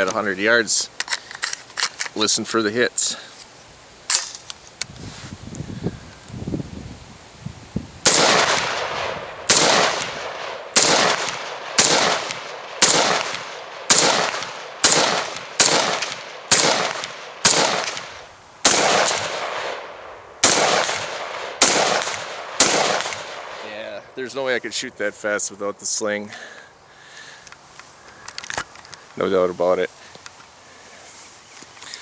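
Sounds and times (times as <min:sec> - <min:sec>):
pistol shots: 0:08.0 - 0:23.6.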